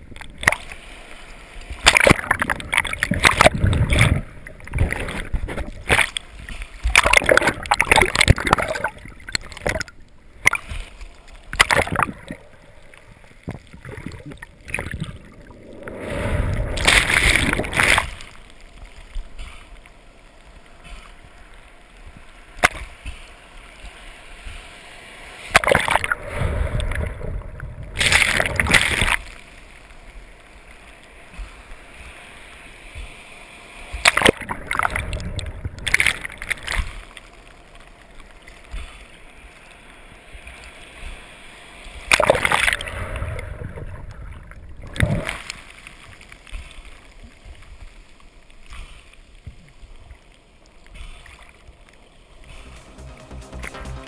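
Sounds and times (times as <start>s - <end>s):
seawater sloshing and splashing: 1.6s - 12.4s.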